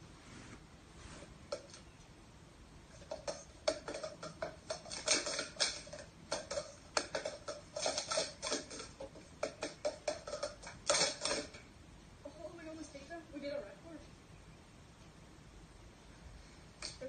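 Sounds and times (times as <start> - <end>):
plastic cups clattering: 2.9 - 11.7.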